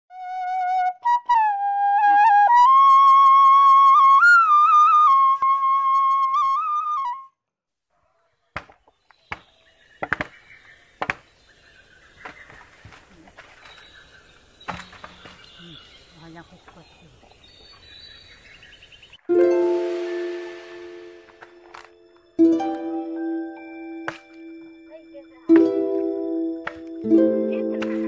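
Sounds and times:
solo flute melody: 0:00.1 - 0:07.4, 0:19.3 - 0:27.9
sharp knocks and cracks: 0:08.5 - 0:10.4, 0:11.0 - 0:11.3, 0:12.2 - 0:13.8, 0:14.6 - 0:15.5, 0:24.0 - 0:24.4, 0:25.5 - 0:25.8, 0:26.6 - 0:27.0.

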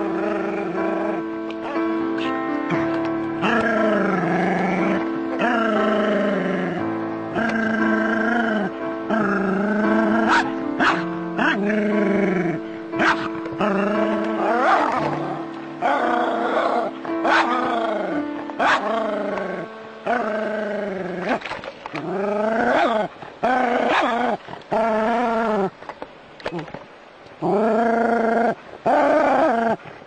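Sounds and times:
music: 0:00.0 - 0:25.6
dog barking and yelping: 0:10.2 - 0:11.6, 0:13.0 - 0:13.3, 0:14.6 - 0:17.6, 0:18.6 - 0:18.9, 0:23.8 - 0:24.2.

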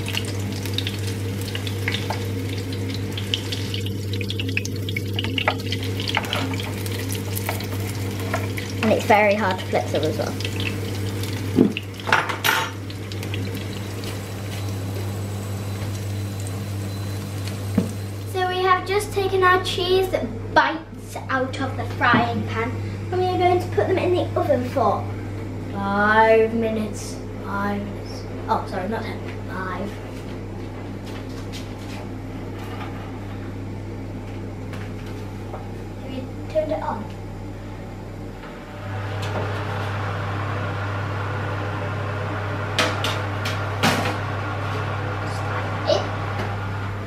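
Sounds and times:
food sizzling in hot oil: 0:00.0 - 0:18.4
steady low hum: 0:00.0 - 0:47.0.

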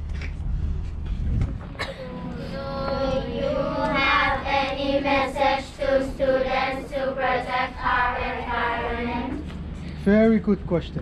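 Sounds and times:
children reading aloud in unison: 0:02.0 - 0:09.5.

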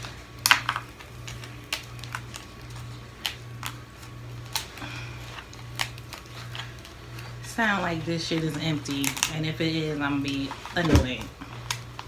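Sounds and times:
crab shell cracking: 0:00.0 - 0:07.4, 0:08.8 - 0:09.5, 0:11.4 - 0:12.0.

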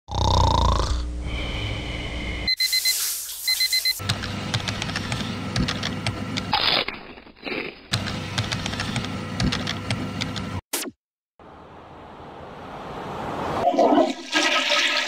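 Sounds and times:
digital alarm clock beeping: 0:02.5 - 0:04.0.

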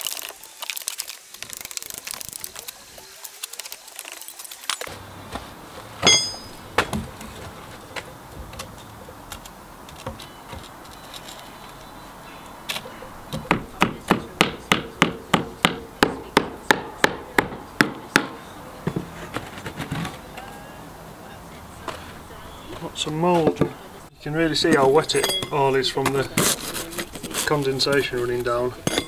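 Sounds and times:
hammer striking brick: 0:06.0 - 0:07.0, 0:13.3 - 0:18.4
metallic clang: 0:06.0 - 0:07.2, 0:24.7 - 0:25.7.

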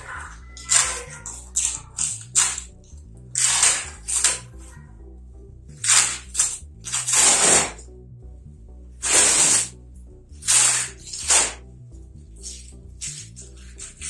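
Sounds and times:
background music: 0:00.0 - 0:14.0
packing tape ripping: 0:00.6 - 0:02.7, 0:03.3 - 0:04.5, 0:05.8 - 0:07.8, 0:09.0 - 0:09.7, 0:10.4 - 0:11.6, 0:12.4 - 0:14.0.

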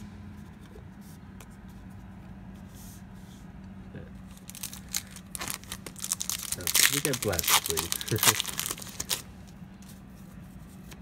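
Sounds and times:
steady low hum: 0:00.0 - 0:11.0
wrapper crinkling: 0:04.3 - 0:09.3
trading cards rustling and clicking: 0:04.3 - 0:10.0.

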